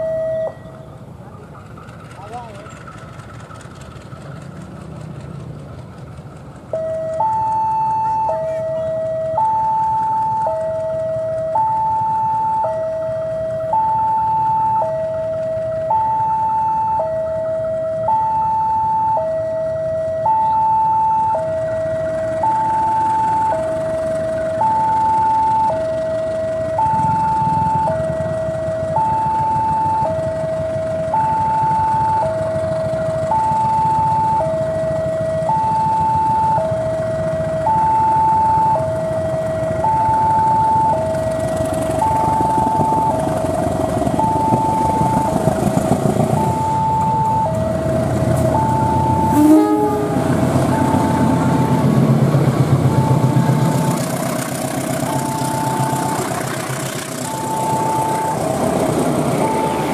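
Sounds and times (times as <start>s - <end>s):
two-tone crossing alarm chime: 0.0s - 1.0s, 6.7s - 59.9s
diesel locomotive engine rumble: 0.0s - 59.9s
train wheel clatter: 1.3s - 7.6s.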